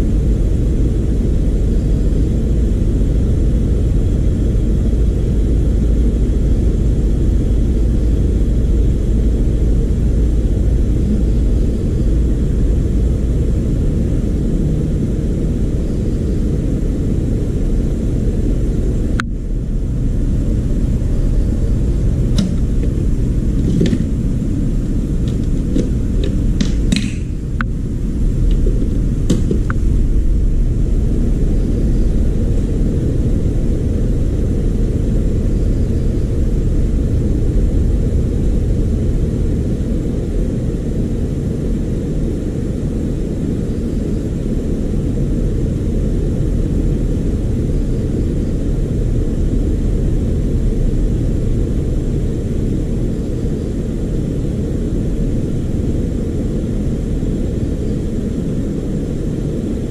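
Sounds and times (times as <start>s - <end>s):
loud low rumble: 0.0s - 59.9s.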